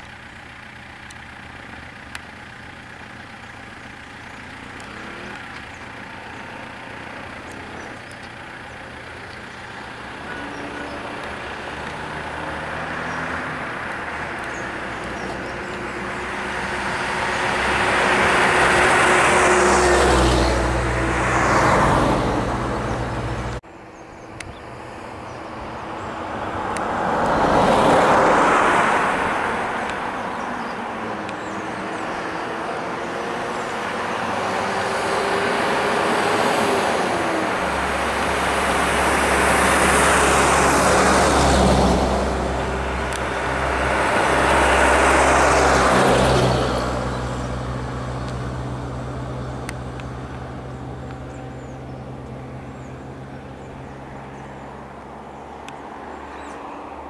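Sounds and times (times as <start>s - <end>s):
vehicle engine idling: 0.0s - 21.3s
vehicles passing by: 0.0s - 57.0s.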